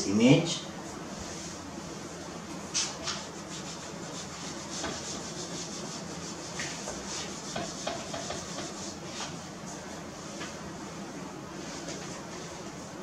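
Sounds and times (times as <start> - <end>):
eraser rubbing on whiteboard: 2.8 - 9.4.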